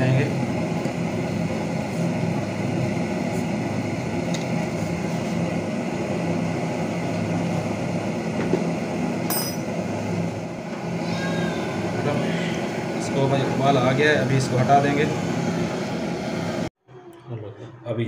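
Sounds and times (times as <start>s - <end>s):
mechanical hum with hiss: 0.0s - 16.7s
sharp clink: 9.3s - 9.7s.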